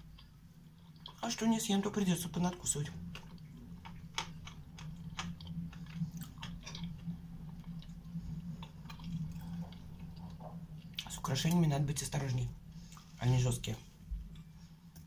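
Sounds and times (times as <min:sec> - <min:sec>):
sugar crunching: 0:02.5 - 0:11.7
wet chewing mouth sounds: 0:03.1 - 0:11.2.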